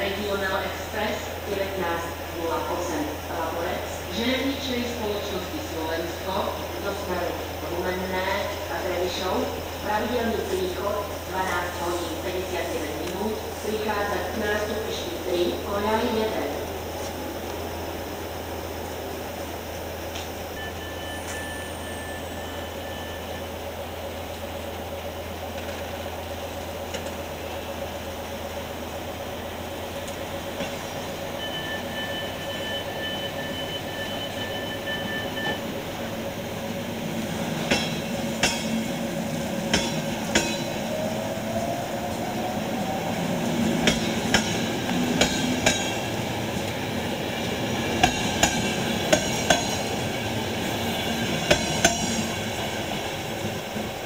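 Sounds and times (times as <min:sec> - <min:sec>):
diesel locomotive idling: 0:00.0 - 0:54.0
rail wheels clacking over joints: 0:29.9 - 0:54.0.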